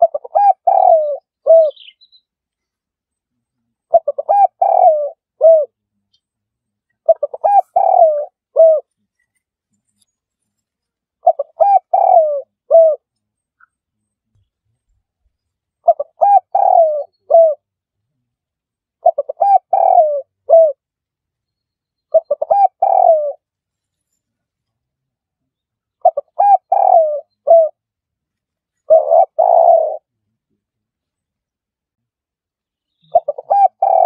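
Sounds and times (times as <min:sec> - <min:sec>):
dove cooing: 0:00.0 - 0:02.0, 0:03.8 - 0:05.8, 0:07.0 - 0:08.9, 0:11.2 - 0:13.1, 0:15.8 - 0:17.6, 0:19.0 - 0:20.8, 0:22.1 - 0:23.4, 0:26.0 - 0:27.8, 0:28.8 - 0:30.1, 0:33.1 - 0:34.0.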